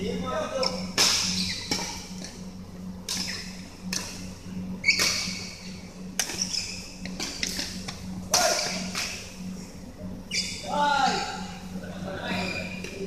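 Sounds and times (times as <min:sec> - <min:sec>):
steady low hum: 0:00.0 - 0:13.0
rackets smacking shuttlecock: 0:00.6 - 0:02.4, 0:04.9 - 0:05.4, 0:06.2 - 0:09.3.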